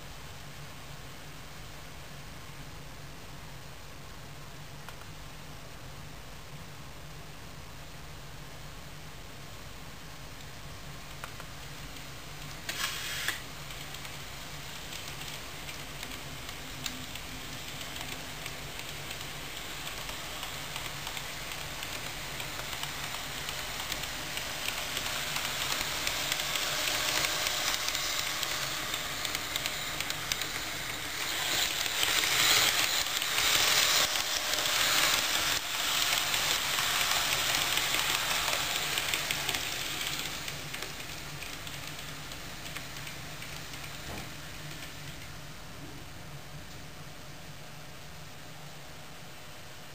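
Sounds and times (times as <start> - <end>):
model train rolling on track: 10.0 - 45.6
short hiss: 12.6 - 13.6.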